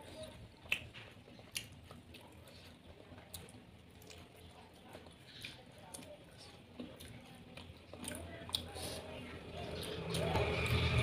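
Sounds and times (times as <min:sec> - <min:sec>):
wet chewing: 0:00.0 - 0:11.0
mouth clicks and smacks: 0:00.6 - 0:02.0.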